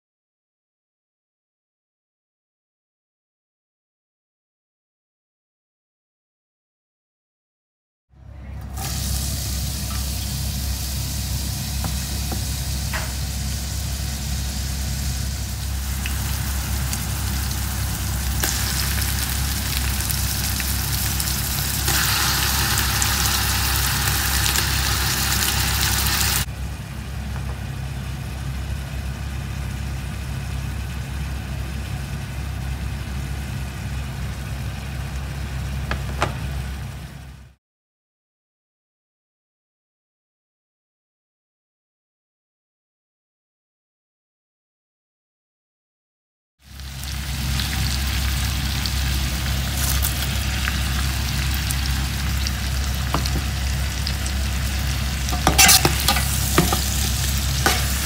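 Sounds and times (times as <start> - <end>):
low hum: 8.2 - 37.5, 46.8 - 58.0
food sizzling in a pot: 8.8 - 26.5, 46.6 - 58.0.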